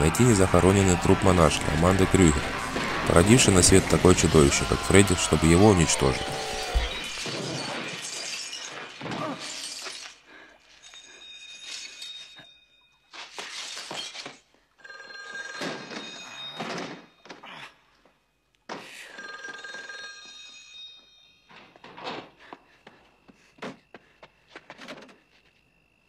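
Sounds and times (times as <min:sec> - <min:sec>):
payphone bell ringing: 0:14.8 - 0:16.8, 0:19.1 - 0:21.5.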